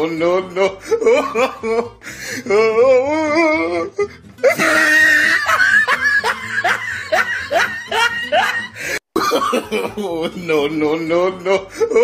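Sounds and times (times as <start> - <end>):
person's wavering sung vocal: 0.0 - 5.4
person laughing: 0.6 - 2.6, 3.5 - 12.0.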